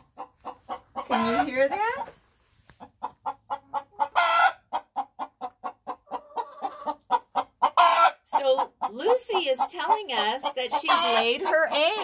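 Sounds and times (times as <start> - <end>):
hen cackling: 3.2 - 12.0.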